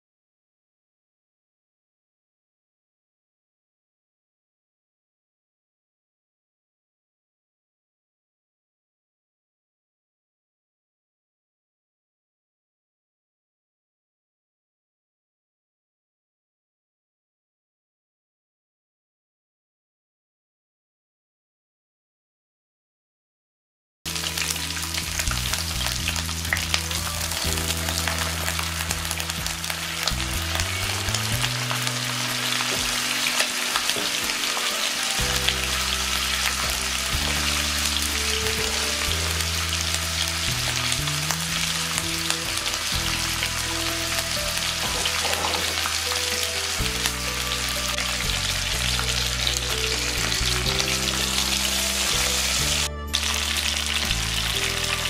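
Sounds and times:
fish sizzling in hot oil: 24.1 - 55.0.

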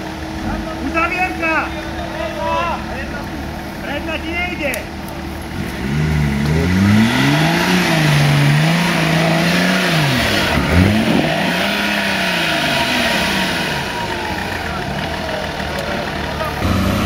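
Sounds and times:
engine revving hard: 5.5 - 17.0.

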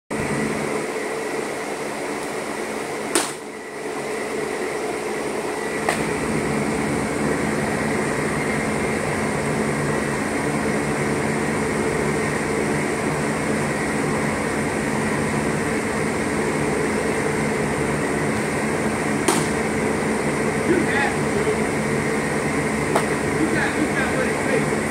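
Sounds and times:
ventilation fans humming: 0.1 - 24.9
sharp pop: 3.1 - 3.4, 19.2 - 19.6, 22.9 - 23.1.

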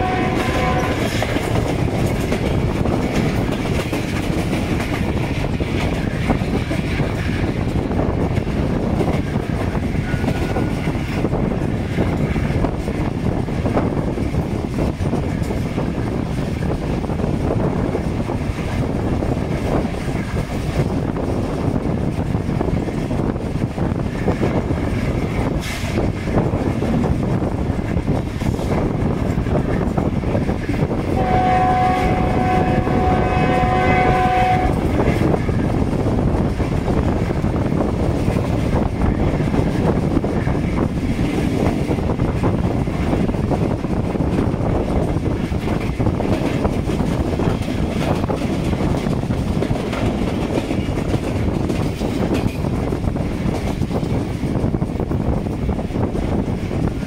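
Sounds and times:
locomotive horn blast: 0.0 - 1.1, 31.2 - 34.8
train wheels rumbling on rail: 0.0 - 57.0
wind: 0.0 - 57.0.

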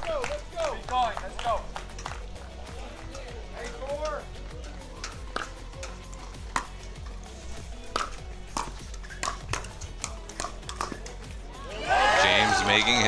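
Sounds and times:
paddles striking plastic ball: 5.0 - 6.9, 7.9 - 11.3.

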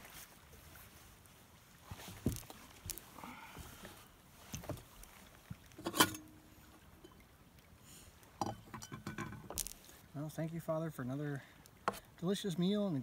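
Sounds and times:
metal pot lid and spoon clinking: 5.8 - 6.4.

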